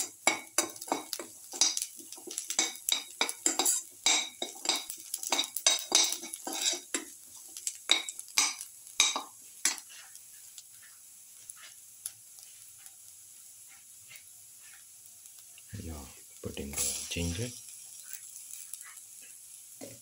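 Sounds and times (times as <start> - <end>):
faint sizzle: 0.0 - 20.0
metal spoon scraping a pan: 0.2 - 11.8, 13.7 - 14.9, 17.9 - 20.0.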